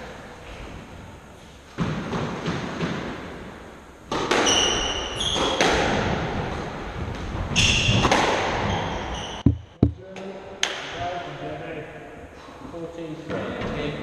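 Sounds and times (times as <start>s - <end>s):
squash ball hitting racket and walls: 1.7s - 11.0s
shoes squeaking on wooden floor: 8.7s - 10.0s.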